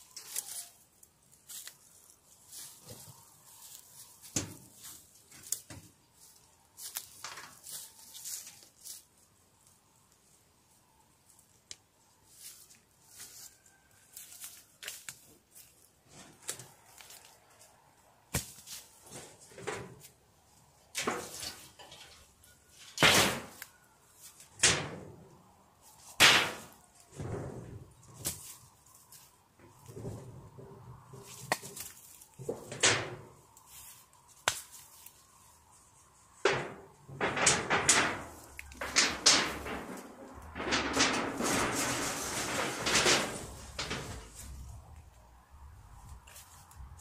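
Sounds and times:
metal roof sheets knocking and scraping: 0:04.2 - 0:06.0, 0:19.0 - 0:20.1, 0:20.9 - 0:25.3, 0:26.1 - 0:28.6, 0:29.8 - 0:33.4, 0:36.4 - 0:44.8.

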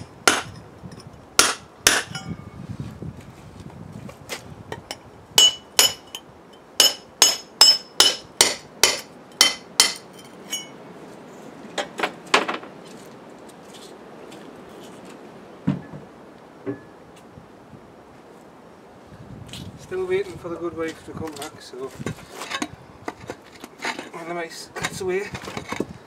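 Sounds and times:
dull knocks: 0:15.6 - 0:16.9.

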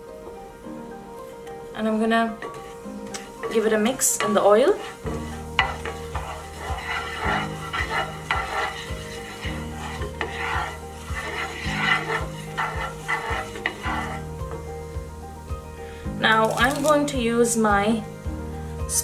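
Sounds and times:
seeds sizzling in oil: 0:01.5 - 0:19.0
utensil scraping and tapping pan: 0:02.3 - 0:14.6, 0:16.4 - 0:17.0.

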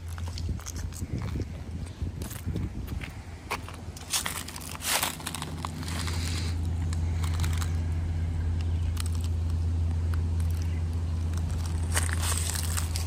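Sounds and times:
footsteps on dry ground: 0:00.0 - 0:08.0, 0:11.2 - 0:13.0
steady low rumble: 0:00.0 - 0:13.0.

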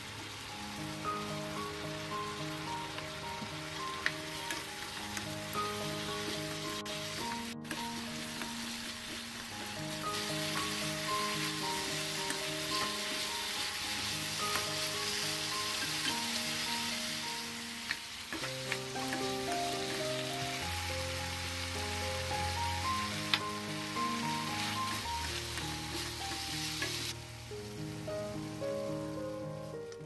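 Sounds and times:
background music: 0:00.0 - 0:30.0
pork and garlic sizzling in a pan: 0:00.0 - 0:30.0.

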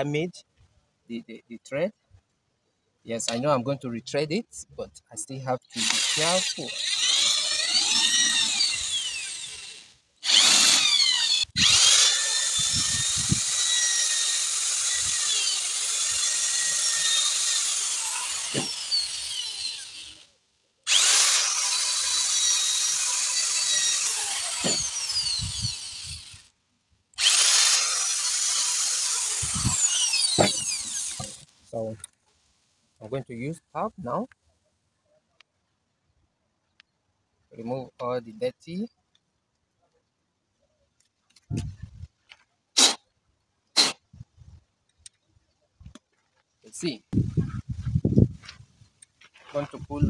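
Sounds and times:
electric drill whining: 0:05.8 - 0:20.3, 0:20.9 - 0:26.5, 0:27.2 - 0:31.5.

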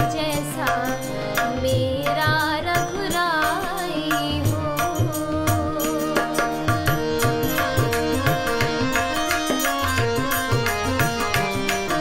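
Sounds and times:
woman singing devotional song: 0:00.0 - 0:12.0
held instrumental tones: 0:04.5 - 0:12.0.

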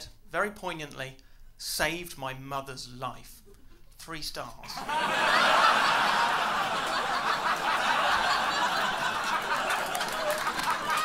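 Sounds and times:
audience laughter: 0:04.8 - 0:11.0.

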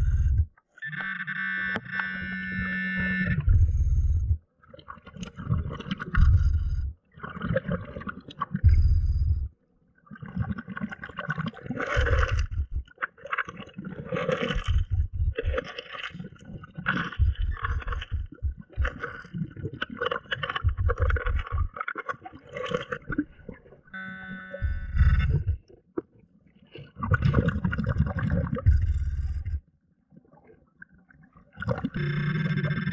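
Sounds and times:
exhaled bubbles gurgling underwater: 0:00.0 - 0:00.6, 0:03.1 - 0:23.9, 0:24.6 - 0:32.9
electronic alert tone: 0:24.0 - 0:25.6.

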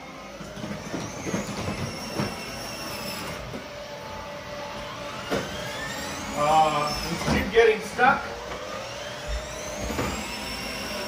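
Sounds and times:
toy car motor whine: 0:00.0 - 0:07.6, 0:08.3 - 0:11.0
plastic wheels rumbling on wood: 0:00.3 - 0:03.7.

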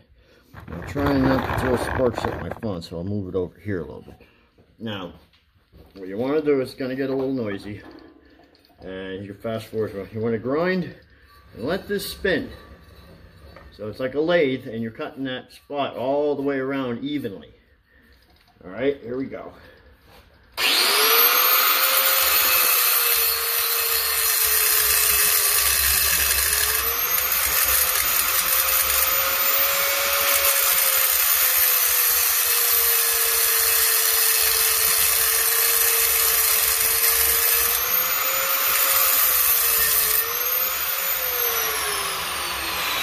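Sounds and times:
angle grinder cutting metal: 0:00.6 - 0:02.7, 0:20.6 - 0:43.0.

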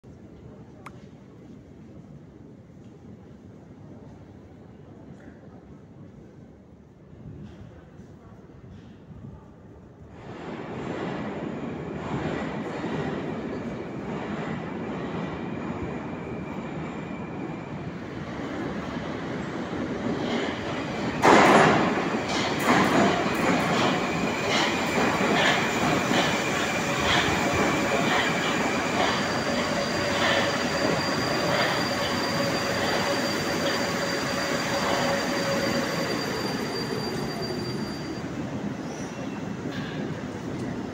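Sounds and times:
train wheels on rails: 0:10.1 - 0:40.9.

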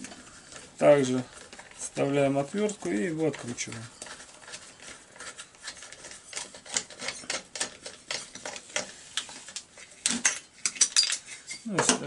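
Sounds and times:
screwdriver metallic clicks and scrapes: 0:02.6 - 0:11.8.

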